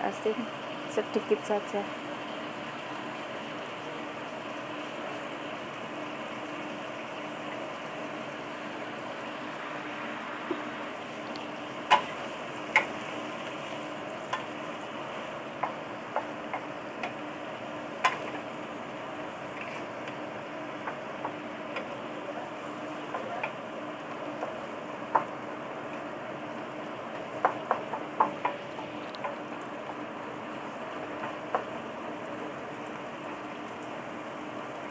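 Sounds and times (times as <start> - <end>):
food sizzling in a wok: 0.0 - 34.9
wooden spatula knocking on pan: 15.6 - 17.2, 25.1 - 25.3, 27.4 - 28.6.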